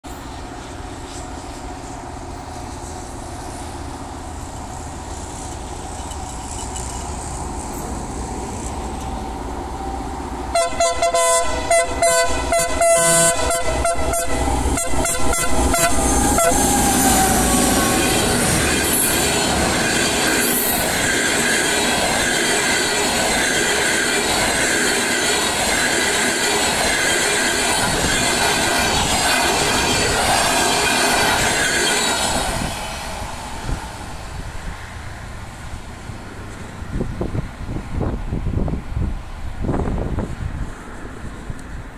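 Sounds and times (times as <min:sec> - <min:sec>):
train coaches rumbling and rattling: 0:00.0 - 0:41.9
train wheel clacks: 0:04.4 - 0:09.4, 0:13.4 - 0:33.8.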